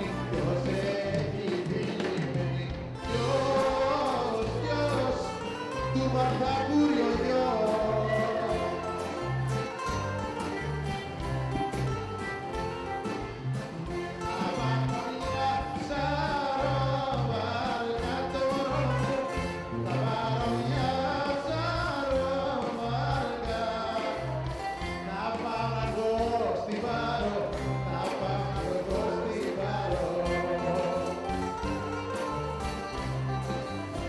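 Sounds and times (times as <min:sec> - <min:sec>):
bouzouki: 0:00.0 - 0:34.0
drums: 0:00.0 - 0:34.0
guitar: 0:00.0 - 0:34.0
keyboard melody: 0:00.0 - 0:34.0
repeating bass line: 0:00.0 - 0:34.0.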